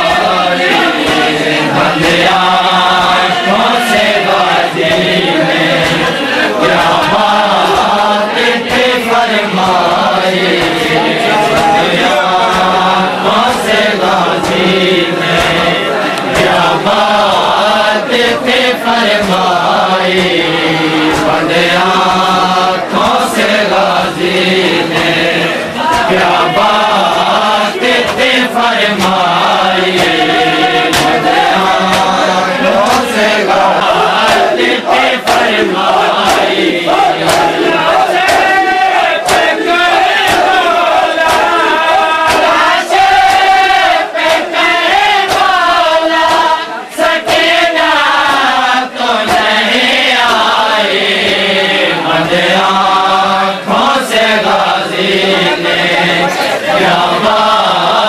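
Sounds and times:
men chanting together: 0:00.0 - 0:58.0
sharp knocks: 0:19.0 - 0:23.4, 0:24.9 - 0:46.6.

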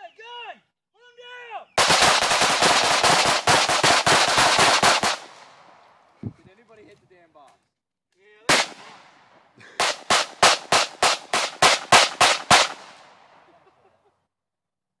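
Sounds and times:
pistol shots: 0:01.8 - 0:05.9, 0:08.5 - 0:13.4
gunshot echo: 0:08.5 - 0:13.4.

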